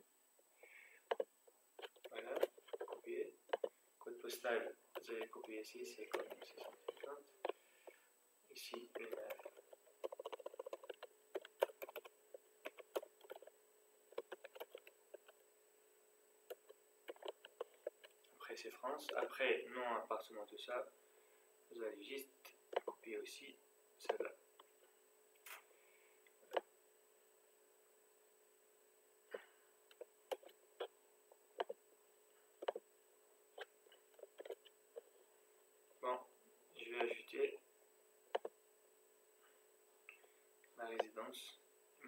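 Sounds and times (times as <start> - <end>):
computer mouse and keyboard clicks: 1.1 - 3.7, 5.0 - 7.6, 8.7 - 13.5, 14.1 - 15.4, 16.5 - 18.2, 22.7 - 23.0, 29.9 - 30.9, 31.6 - 31.8, 32.6 - 32.8, 33.6 - 35.1, 38.3 - 38.5
typing on keyboard: 8.9 - 13.5, 14.2 - 15.3.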